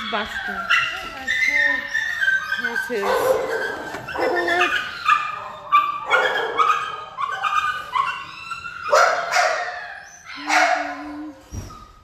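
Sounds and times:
dog barking: 0:02.6 - 0:08.3, 0:08.9 - 0:09.8, 0:10.4 - 0:11.0.

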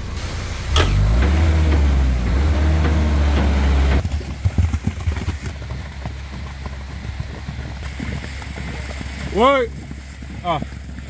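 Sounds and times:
pump engine running: 0:00.0 - 0:04.4
sharp knocks: 0:00.8 - 0:04.0.

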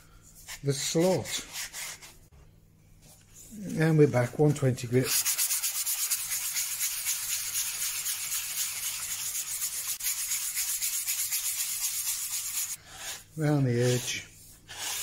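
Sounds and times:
sandpaper rubbing on wood: 0:05.0 - 0:15.0.

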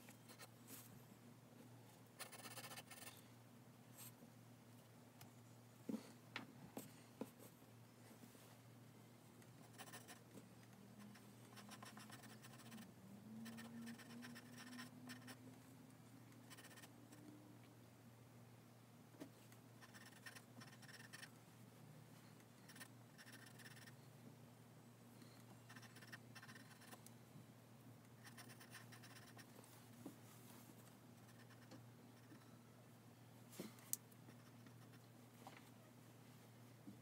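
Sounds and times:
pencil sketching on paper: 0:09.6 - 0:10.2, 0:11.1 - 0:15.4, 0:16.5 - 0:16.9, 0:19.8 - 0:21.3, 0:22.7 - 0:23.9, 0:28.2 - 0:29.5.

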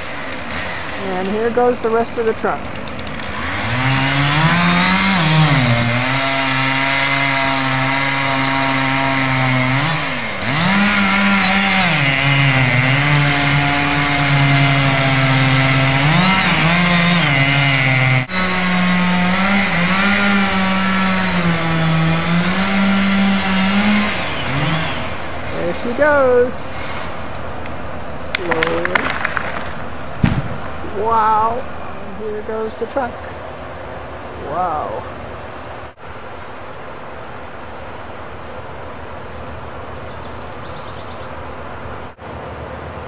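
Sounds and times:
chainsaw cutting wood: 0:00.0 - 0:27.4, 0:28.4 - 0:30.8.

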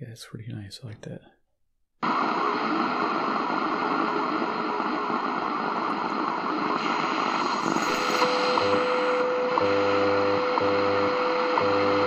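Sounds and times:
shortwave radio static hiss: 0:02.0 - 0:12.0.

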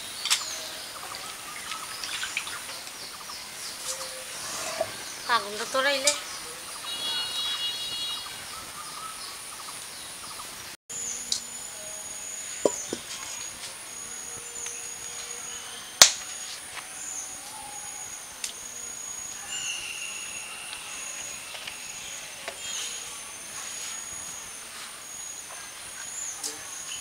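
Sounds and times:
high-pitched insect drone: 0:10.9 - 0:27.0.

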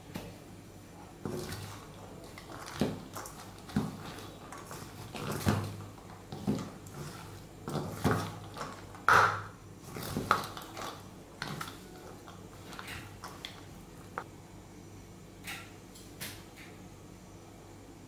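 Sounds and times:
spatula scraping metal bowl: 0:01.2 - 0:09.1.

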